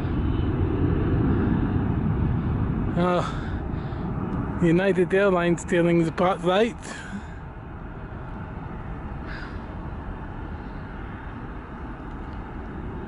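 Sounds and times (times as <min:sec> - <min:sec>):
distant jet engines rumbling: 0:00.0 - 0:13.0.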